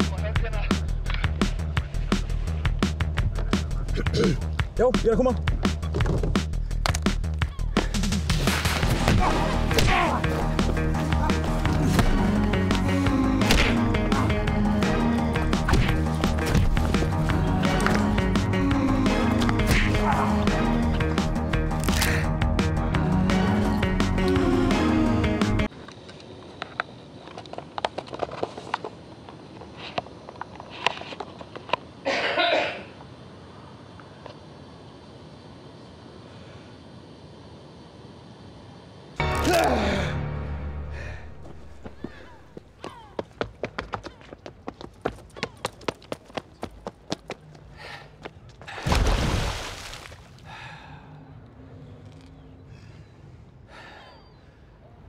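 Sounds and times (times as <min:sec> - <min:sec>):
person coughing: 0:03.9 - 0:04.5, 0:32.0 - 0:33.0.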